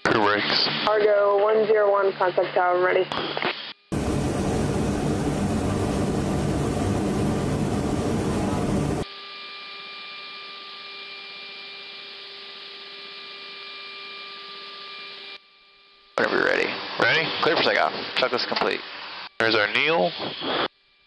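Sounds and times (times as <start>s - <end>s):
aircraft engine noise: 3.9s - 9.0s.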